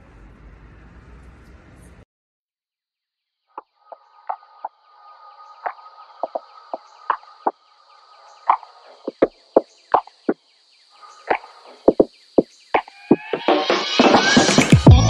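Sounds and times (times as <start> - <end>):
insect chirring: 3.4 - 13.3.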